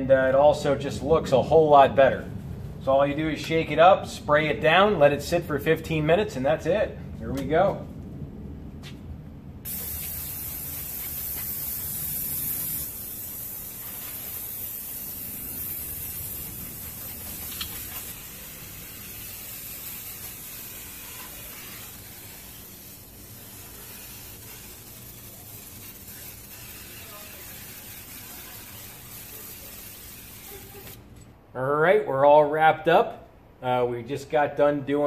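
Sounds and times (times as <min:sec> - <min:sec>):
aerosol can spraying hiss: 0:09.7 - 0:31.0.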